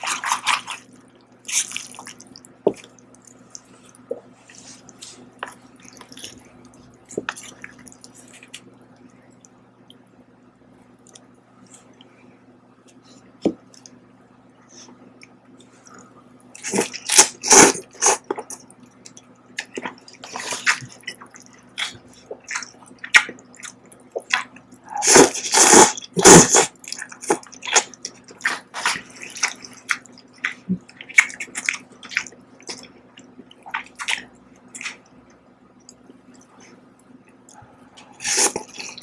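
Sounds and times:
wet chewing: 0:00.0 - 0:10.0, 0:15.2 - 0:39.0
noodle slurping: 0:24.9 - 0:30.6.

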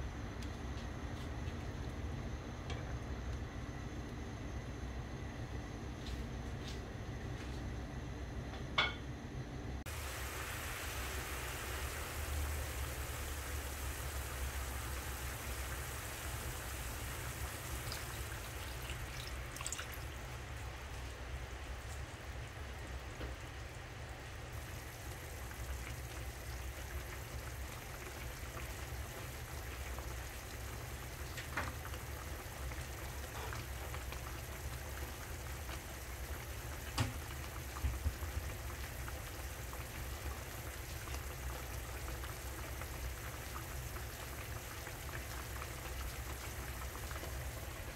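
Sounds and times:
low steady hum: 0:00.0 - 0:47.9
sauce bubbling in a pan: 0:09.8 - 0:47.9.

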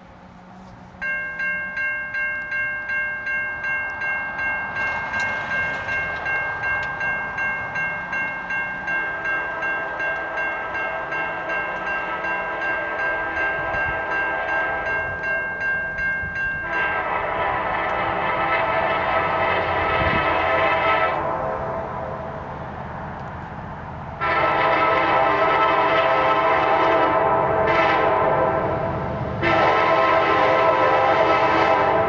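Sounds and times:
crossing warning bell ringing: 0:01.0 - 0:22.8
distant train horn: 0:09.0 - 0:15.3, 0:16.4 - 0:22.8, 0:24.1 - 0:32.0.

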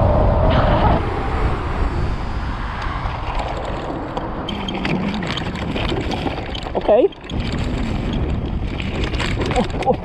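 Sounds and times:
wind rushing over microphone: 0:00.0 - 0:10.0
scooter rattling on stony ground: 0:03.0 - 0:10.0.

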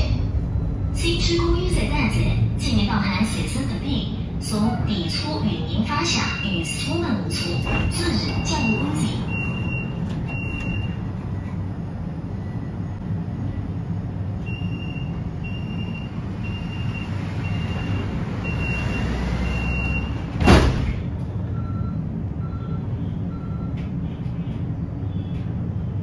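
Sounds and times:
tram running rumble: 0:00.0 - 0:26.0
slower lower beeps: 0:00.2 - 0:01.7, 0:06.1 - 0:11.6, 0:14.4 - 0:20.2, 0:21.5 - 0:23.9.

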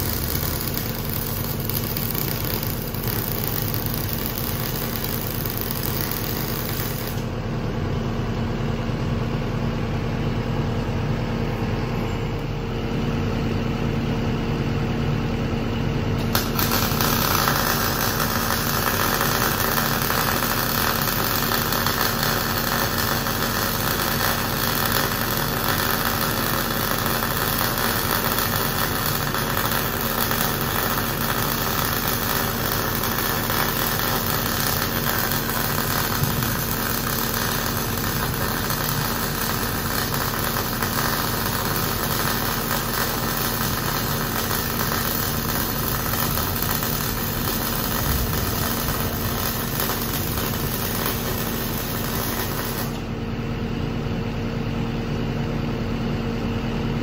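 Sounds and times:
welding arc crackling: 0:00.0 - 0:07.3, 0:16.2 - 0:53.2
steady hum: 0:00.0 - 0:57.0.

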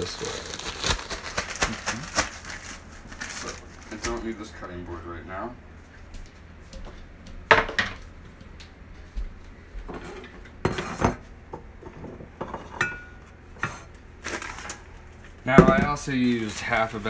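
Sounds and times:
dishes knocking and clinking: 0:06.8 - 0:08.0, 0:09.9 - 0:13.9, 0:15.6 - 0:16.0.

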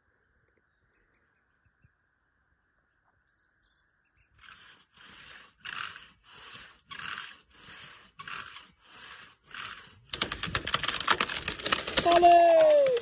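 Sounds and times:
hand saw cutting wood: 0:04.4 - 0:13.0
wood splintering and crackling: 0:04.4 - 0:13.0.

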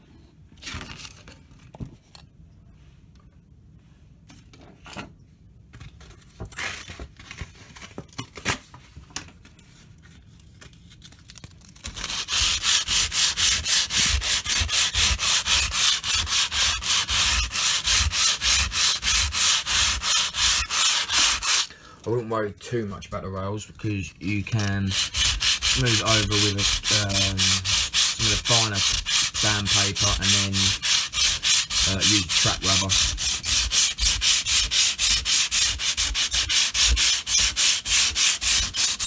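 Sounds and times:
sandpaper sanding strokes: 0:12.0 - 0:21.7, 0:24.6 - 0:39.0
faint scrapes and handling: 0:24.2 - 0:33.2.

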